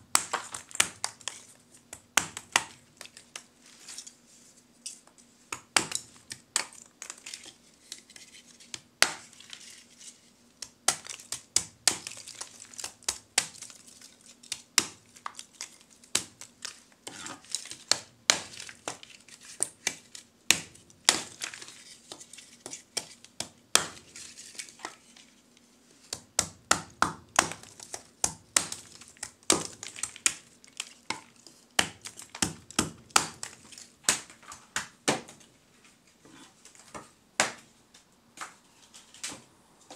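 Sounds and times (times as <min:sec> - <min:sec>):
blade chopping charcoal: 0:26.4 - 0:30.4.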